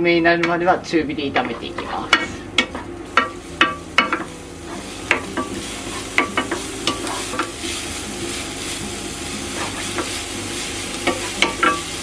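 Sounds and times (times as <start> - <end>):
oil sizzling: 1.2 - 12.0
wooden spatula scraping a pan: 9.4 - 10.4.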